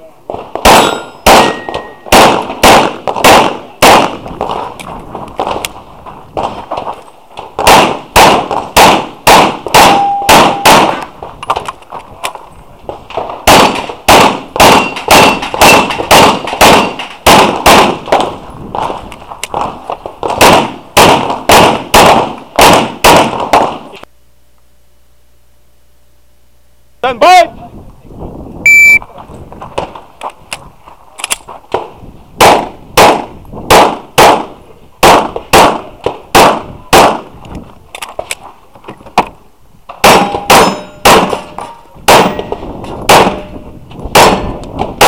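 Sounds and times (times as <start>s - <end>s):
rapid pistol shots: 0.3s - 4.7s, 7.5s - 11.0s, 13.1s - 24.0s, 32.4s - 37.3s, 40.0s - 43.5s, 44.1s - 45.0s
steel targets ringing: 0.7s - 2.1s, 9.8s - 10.8s, 40.0s - 42.6s.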